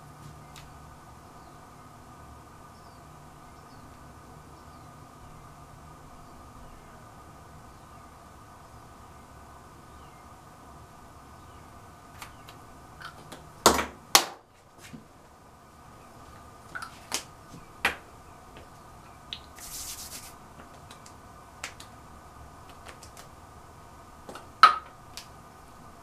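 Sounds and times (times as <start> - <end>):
faint steady hum: 0.0 - 26.0
short hissing rustle: 19.5 - 20.4.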